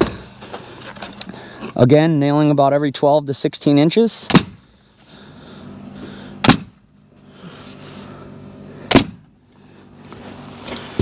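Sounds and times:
pneumatic nailer firing: 0:04.2 - 0:04.7, 0:06.4 - 0:06.8, 0:08.9 - 0:09.3.

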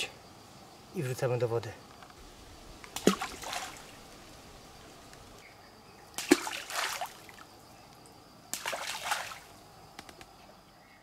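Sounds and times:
groundbait plopping into stream: 0:02.8 - 0:04.0, 0:06.2 - 0:07.4.

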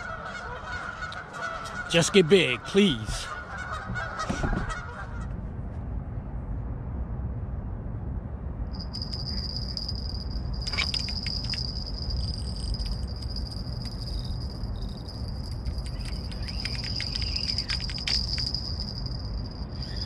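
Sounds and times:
low rumble: 0:03.4 - 0:20.0
insect trill: 0:08.7 - 0:20.0.

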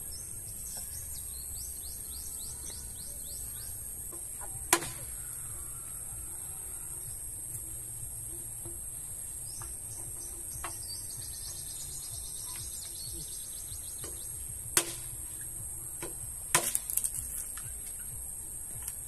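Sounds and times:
high insect drone: 0:00.0 - 0:19.0
machete chops: 0:04.7 - 0:05.2, 0:14.0 - 0:15.2, 0:16.0 - 0:17.1.

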